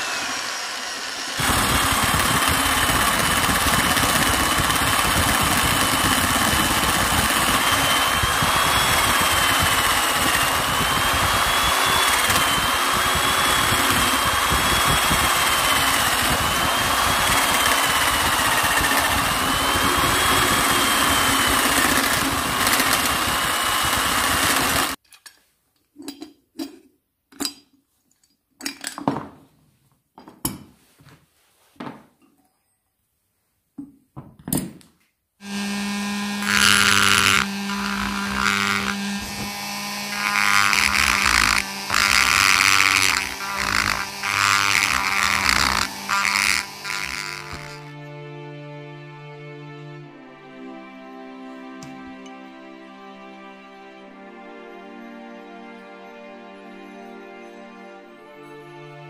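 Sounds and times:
power tool milling metal: 0.0 - 25.0, 35.4 - 47.9.

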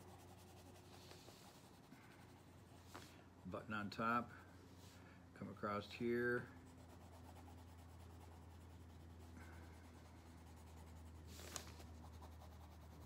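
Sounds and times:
pencil scratching on paper: 0.0 - 2.7, 6.5 - 13.0
low steady hum: 0.0 - 13.0.

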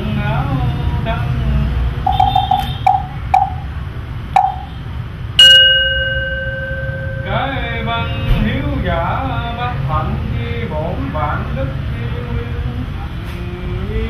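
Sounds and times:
bowl bell ringing: 2.1 - 3.7, 4.4 - 4.8, 5.4 - 7.8.

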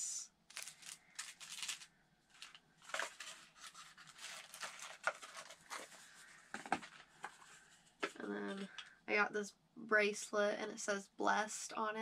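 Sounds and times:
paper packaging rustling: 0.5 - 8.8.

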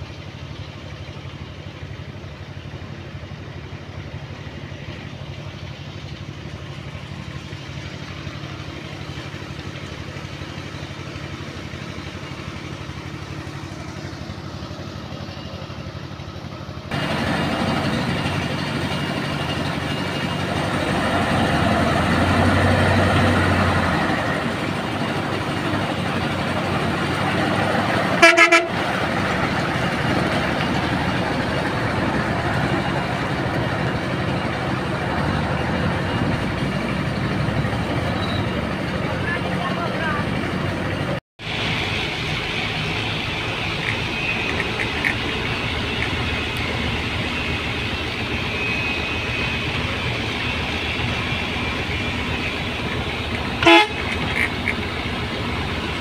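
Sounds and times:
truck diesel engine running: 0.0 - 56.0
vehicle horn toot: 28.2 - 28.9, 53.6 - 54.5.

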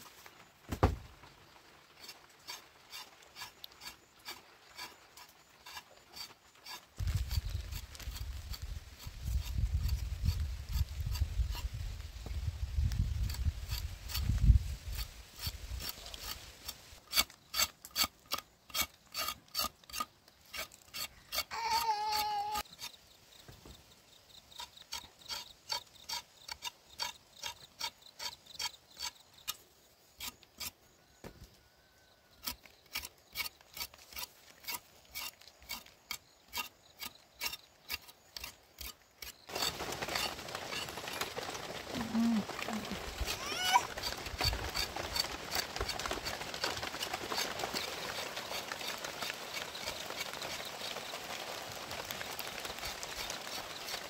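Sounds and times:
knife scraping and chopping roots: 2.0 - 11.7, 13.2 - 23.0, 32.4 - 41.2.

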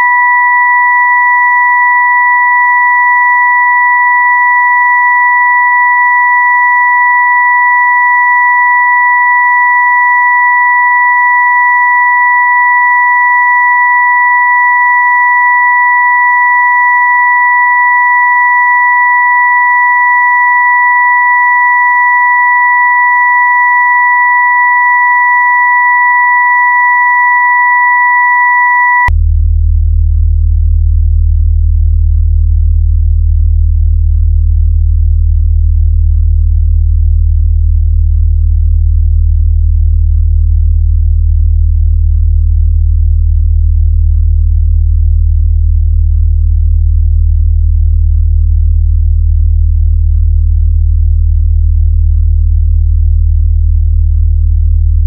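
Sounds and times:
high pure sine tones: 0.0 - 55.0
deep low hum: 29.1 - 55.0.

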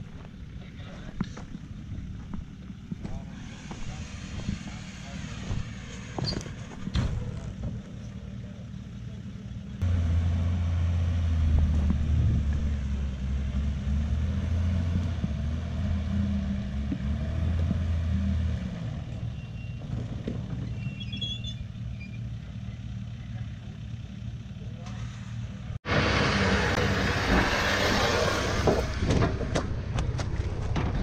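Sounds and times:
car engine idling: 0.0 - 13.8, 21.6 - 25.8.

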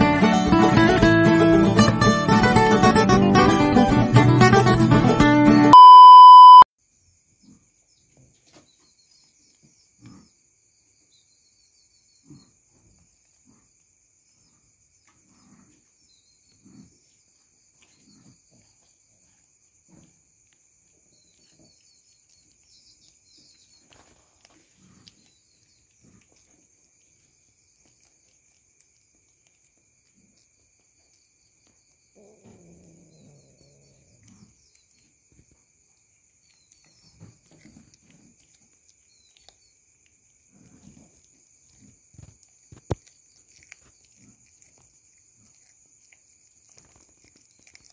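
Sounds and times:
loud test-tone beep: 5.7 - 6.7
cat chewing with wet clicks: 20.5 - 33.6, 36.3 - 47.9.

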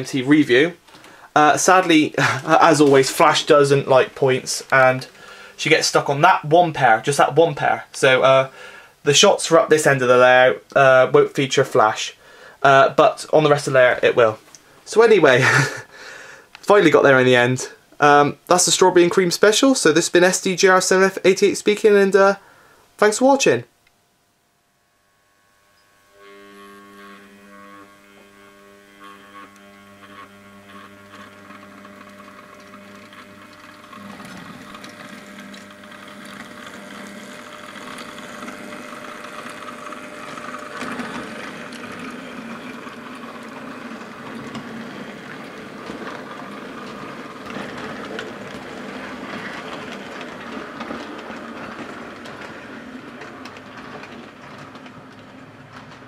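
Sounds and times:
electric motor hum: 0.0 - 17.2, 24.1 - 56.0
model train wheels clicking on track: 0.1 - 8.5, 9.1 - 15.9, 26.2 - 56.0.

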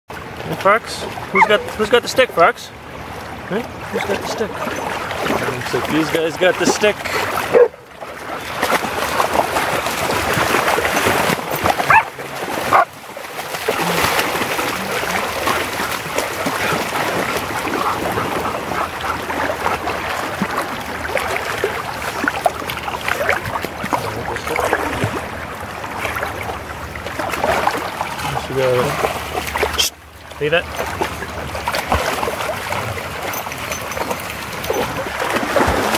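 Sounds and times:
dogs splashing in water: 0.1 - 35.9
dog vocal sounds: 1.3 - 1.8, 11.3 - 12.9, 13.8 - 20.1.

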